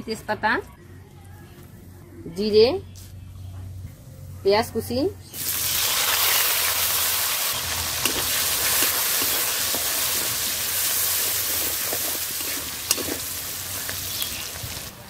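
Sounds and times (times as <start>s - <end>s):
onion sizzling in oil: 5.3s - 15.0s
spatula scraping a pan: 11.0s - 13.4s.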